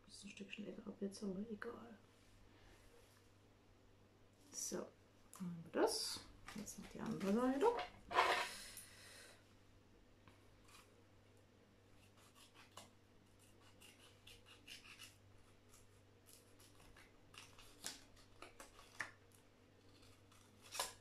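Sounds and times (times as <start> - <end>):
makeup items rustling and clicking: 6.4 - 8.0.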